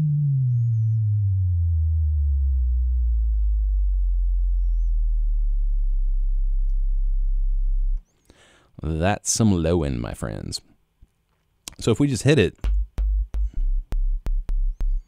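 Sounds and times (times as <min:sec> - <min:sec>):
synth sine tone gliding down: 0:00.0 - 0:08.0.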